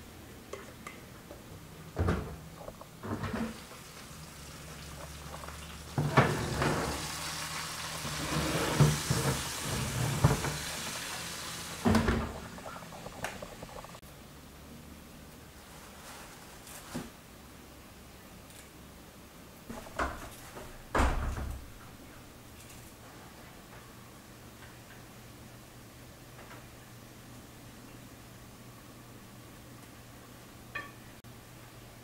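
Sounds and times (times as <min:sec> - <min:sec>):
oven opening: 0:02.0 - 0:03.7, 0:05.9 - 0:13.4
food sizzling: 0:03.0 - 0:14.0.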